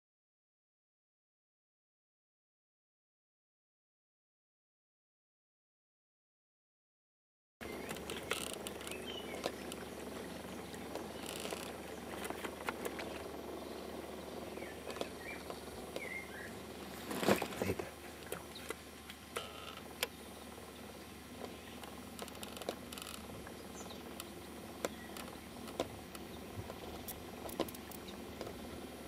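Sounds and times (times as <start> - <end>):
small clicks: 7.8 - 9.9, 21.4 - 28.6
river hiss: 7.9 - 29.0.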